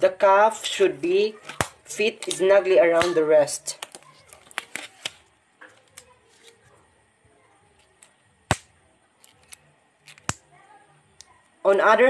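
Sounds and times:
glove rustling and snapping: 7.9s - 10.4s.

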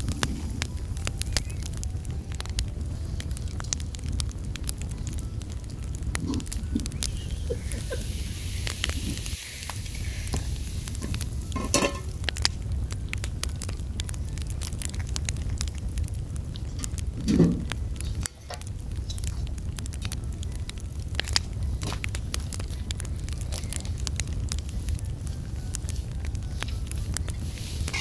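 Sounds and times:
hot pan hissing: 0.0s - 28.0s
wood fire crackling: 0.0s - 28.0s.

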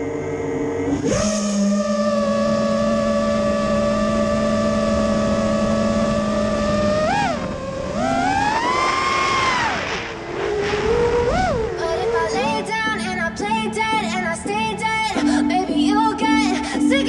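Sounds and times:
quadcopter motors whining: 0.0s - 13.6s.

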